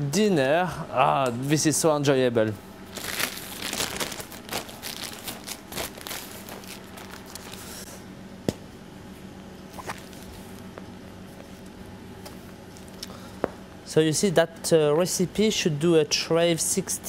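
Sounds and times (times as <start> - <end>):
steady low hum: 0.0 - 17.0
plastic bag crinkling: 2.9 - 7.8.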